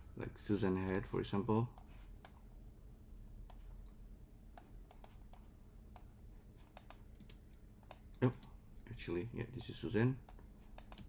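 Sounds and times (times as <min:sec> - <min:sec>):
computer mouse and keyboard clicks: 0:04.6 - 0:06.1, 0:06.7 - 0:08.6, 0:09.6 - 0:11.0.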